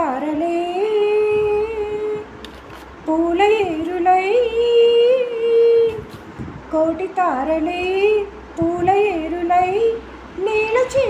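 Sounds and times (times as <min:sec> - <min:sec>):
woman singing long held notes: 0:03.0 - 0:06.1, 0:06.7 - 0:11.0.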